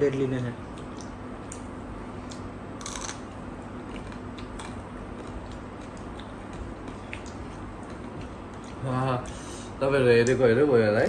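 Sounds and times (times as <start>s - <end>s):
steady low hum: 0.0s - 11.0s
chewing and mouth sounds: 0.7s - 9.4s.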